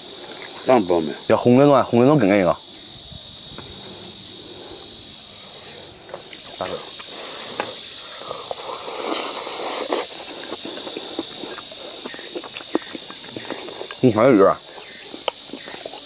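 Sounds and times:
insects droning: 0.0 - 16.0
people eating: 3.6 - 16.0.

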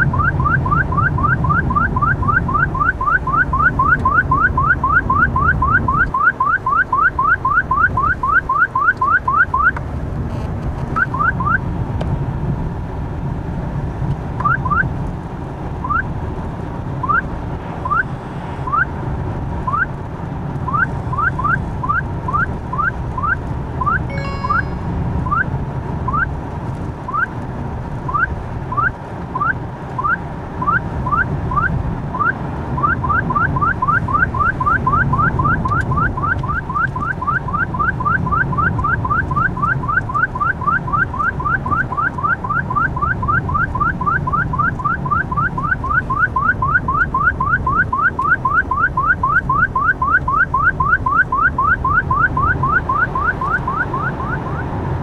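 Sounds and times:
car road and engine noise: 0.0 - 55.0
detector rising chirps: 20.7 - 25.5.

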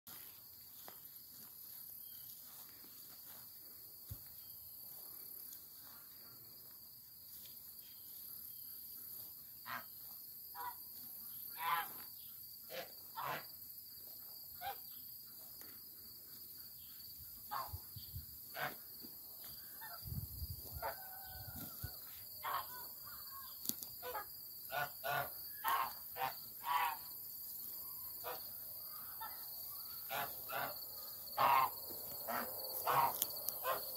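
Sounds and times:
high drone of insects: 0.1 - 33.9
geese honking: 11.5 - 12.0, 12.7 - 13.5, 18.5 - 18.8, 24.0 - 27.0, 28.2 - 33.9.

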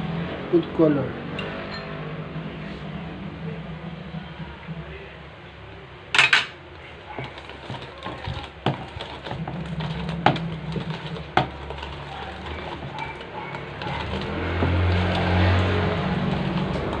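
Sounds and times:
whisk stirring batter: 6.9 - 17.0.

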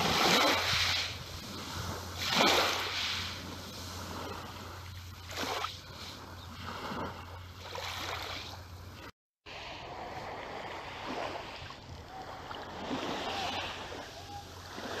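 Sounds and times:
small waves lapping on pebbles: 0.0 - 15.0.

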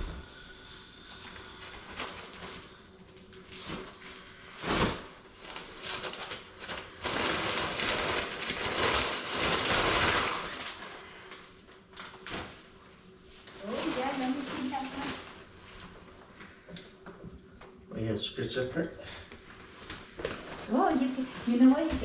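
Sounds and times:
fabric rustling over metal frame: 13.4 - 15.8, 19.6 - 22.0.

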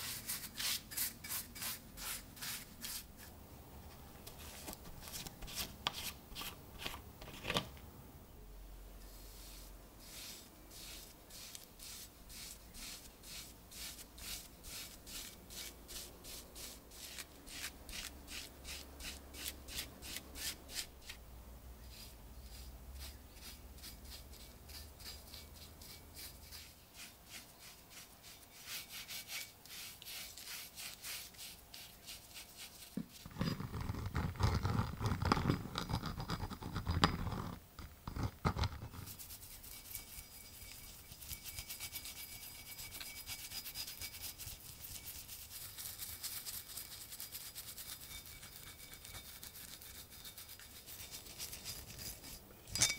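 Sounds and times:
brush scrubbing metal: 9.2 - 21.2, 21.9 - 33.2, 39.0 - 52.4.

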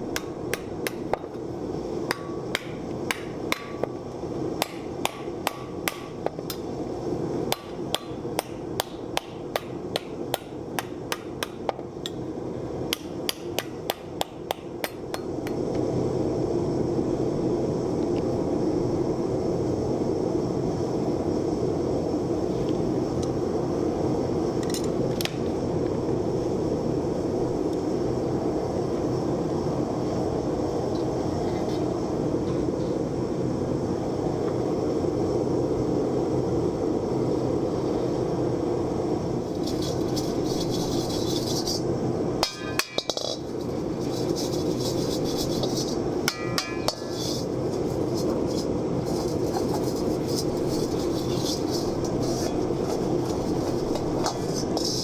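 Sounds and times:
hammer striking steel: 2.1 - 3.9, 4.6 - 6.2, 7.5 - 11.8, 12.9 - 15.6, 42.4 - 43.4, 46.3 - 47.2
gas forge rushing: 38.9 - 55.0.

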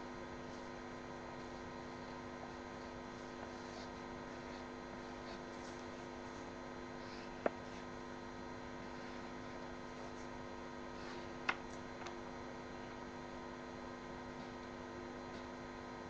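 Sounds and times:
electrical hum: 0.0 - 16.0
pencil scratching on paper: 2.0 - 8.0, 8.8 - 10.4.

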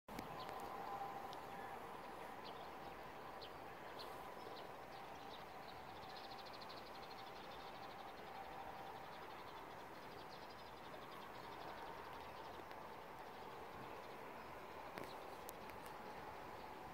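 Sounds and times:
faint steady hum: 0.1 - 16.9.

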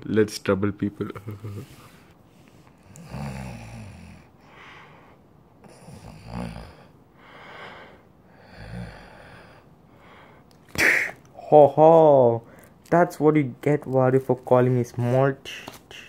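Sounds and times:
person making rasping snoring breaths: 2.8 - 4.3, 5.6 - 10.2.

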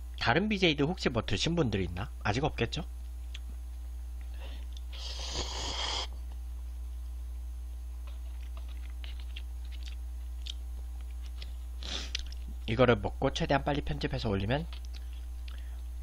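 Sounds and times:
person slurping noodles: 4.9 - 6.1
faint chewing: 8.0 - 12.6, 14.7 - 15.9.

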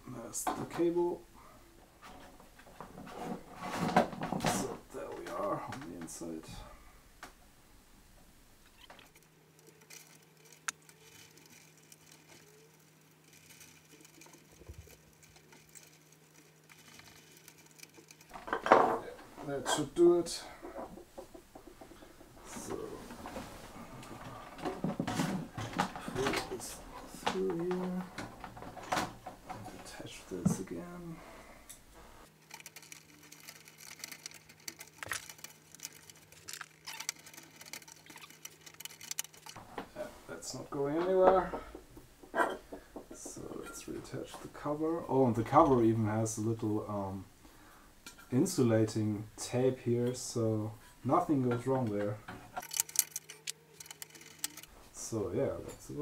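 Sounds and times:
faint steady hum: 0.0 - 56.0
soft clicks and rustles: 8.1 - 44.7, 51.1 - 56.0
screwdriver and cable clicks: 52.6 - 54.7.

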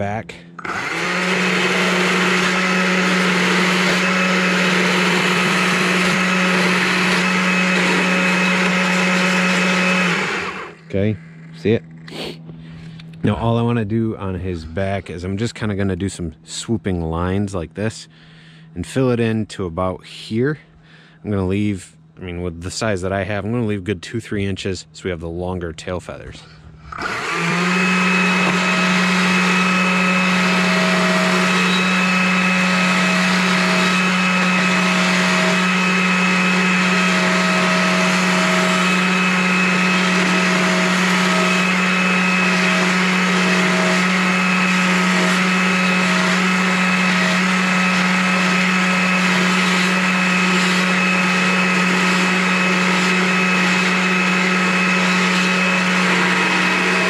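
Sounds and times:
chainsaw cutting wood: 0.6 - 10.8, 26.9 - 57.0.

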